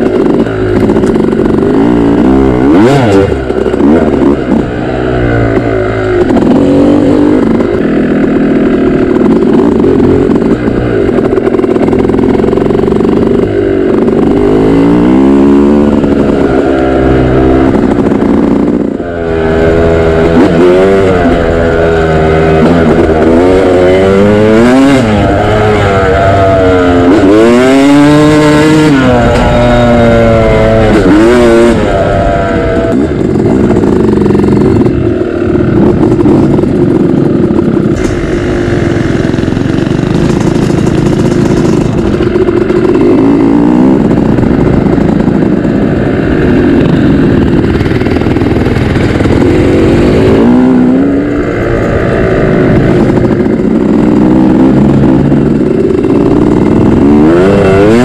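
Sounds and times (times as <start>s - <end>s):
dirt bike engine revving: 0.0s - 58.0s.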